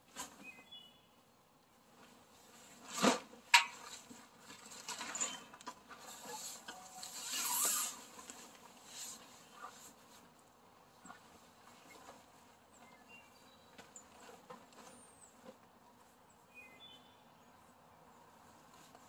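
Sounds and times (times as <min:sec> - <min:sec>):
boat cover rustling: 0:01.8 - 0:16.3.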